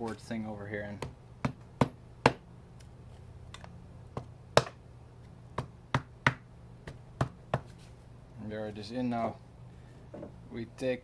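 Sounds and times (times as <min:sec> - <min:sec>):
rubber mallet tapping cardboard tube: 0:05.6 - 0:07.7.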